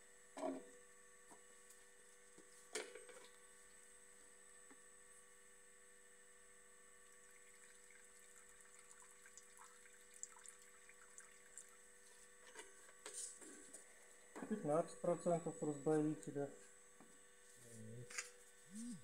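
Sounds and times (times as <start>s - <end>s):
steady electrical hum: 0.0s - 19.0s
liquid trickling into a cup: 7.0s - 12.3s.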